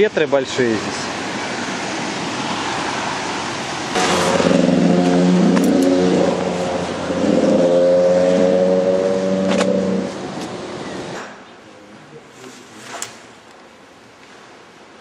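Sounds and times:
rushing river: 0:00.0 - 0:11.4
droning tones: 0:03.9 - 0:10.7.

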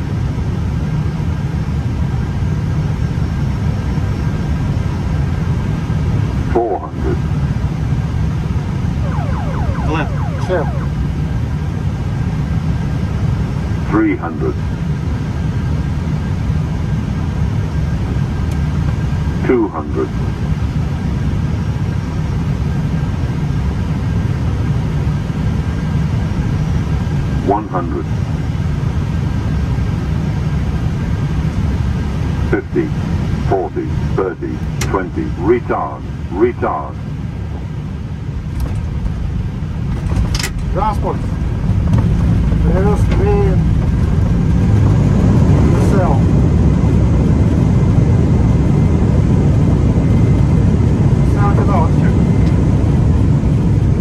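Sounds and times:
low rumble of airflow and engines: 0:00.0 - 0:54.0
faint steady high tones: 0:09.0 - 0:11.2.

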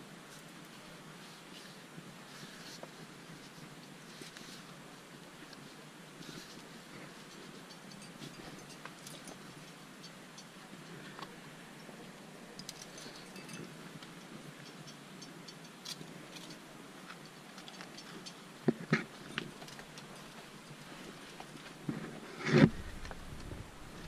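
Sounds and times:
climbing gear clicking and clinking: 0:06.3 - 0:24.0.

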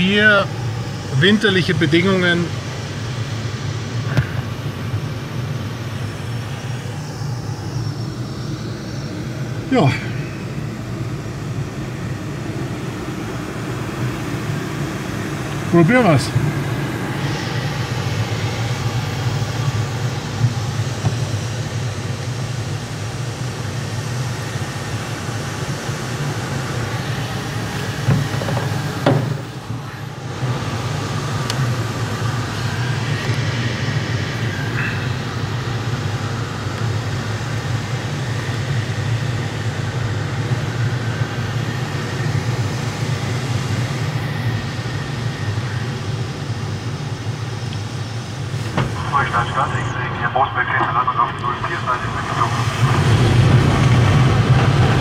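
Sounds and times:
airflow rushing around glider: 0:00.0 - 0:55.0.

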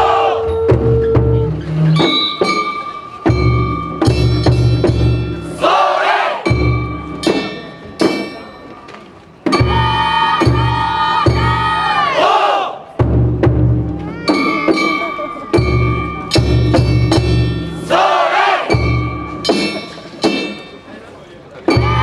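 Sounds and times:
heavy drum beats: 0:00.0 - 0:05.7, 0:06.4 - 0:08.4, 0:09.4 - 0:12.1, 0:12.9 - 0:20.7, 0:21.7 - 0:22.0
ringing metal strikes: 0:00.0 - 0:05.8, 0:06.4 - 0:11.8, 0:14.2 - 0:22.0
group shouting in unison: 0:05.6 - 0:06.5, 0:09.8 - 0:12.9, 0:17.9 - 0:18.7.

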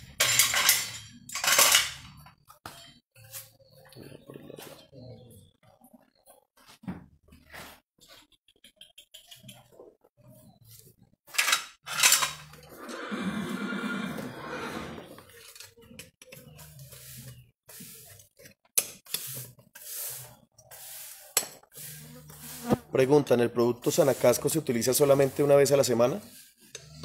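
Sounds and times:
metal tools clinking and knocking: 0:00.0 - 0:03.0, 0:11.3 - 0:12.7.

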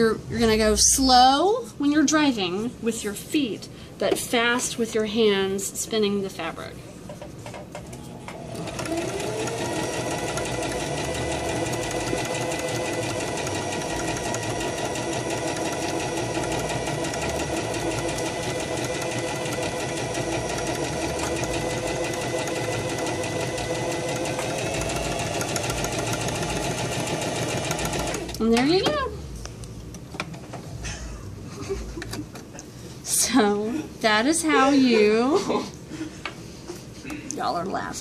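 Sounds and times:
sewing machine motor whine: 0:08.3 - 0:28.4
sewing needle ticking: 0:08.6 - 0:28.4.

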